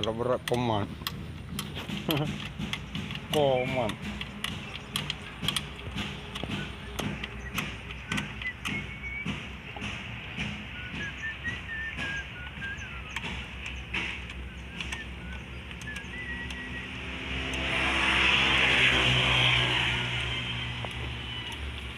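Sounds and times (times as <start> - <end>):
spanner clinking on metal: 0.0 - 8.8.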